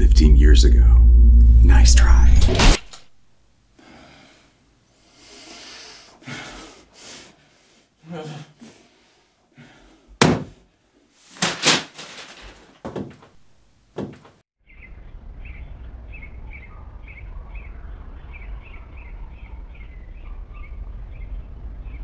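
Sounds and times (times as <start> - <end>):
steady low rumble: 0.0 - 3.8, 14.7 - 22.0
sharp thuds: 10.2 - 10.6, 14.0 - 14.4
birds chirping: 14.6 - 22.0.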